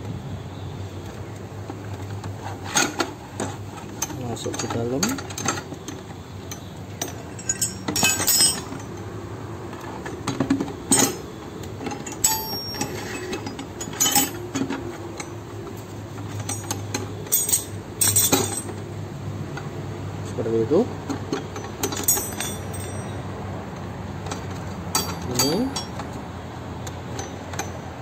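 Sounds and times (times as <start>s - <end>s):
steel tools clinking: 4.0s - 9.0s, 10.9s - 15.4s, 16.2s - 18.8s, 21.3s - 23.2s, 24.3s - 26.2s.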